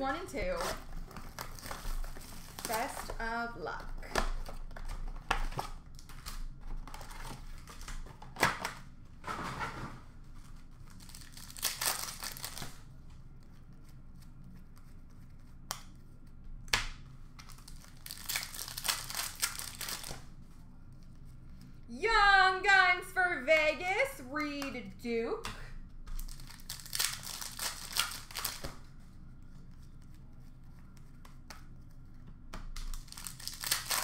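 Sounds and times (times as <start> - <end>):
card pack wrappers tearing: 0.5 - 3.2, 10.9 - 12.8, 17.4 - 20.2, 26.1 - 28.7, 32.8 - 34.0.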